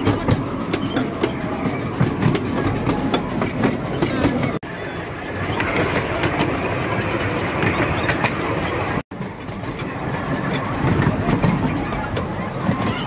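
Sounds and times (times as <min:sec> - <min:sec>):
steam train rumbling and rattling: 0:00.0 - 0:13.0.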